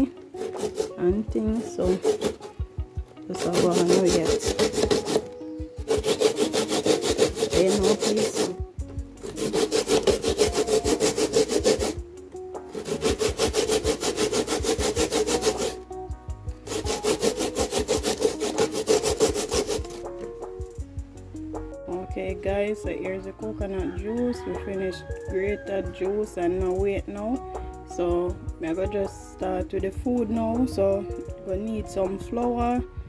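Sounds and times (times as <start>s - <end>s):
coconut grated on metal grater: 0.0s - 2.6s, 3.3s - 12.0s, 12.7s - 15.9s, 16.6s - 20.3s.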